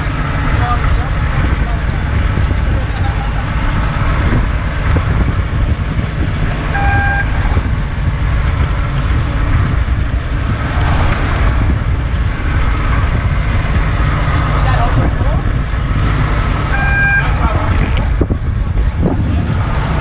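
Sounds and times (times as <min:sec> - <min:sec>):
boat engine running: 0:00.0 - 0:20.0
wind buffeting microphone: 0:00.0 - 0:20.0
short beep: 0:06.8 - 0:07.3, 0:16.8 - 0:17.4.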